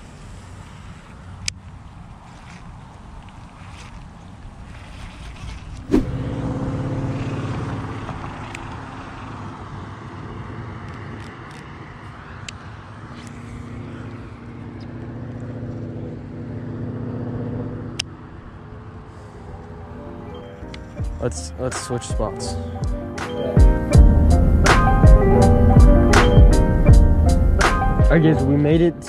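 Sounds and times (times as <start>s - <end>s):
cars passing: 0.0s - 29.0s.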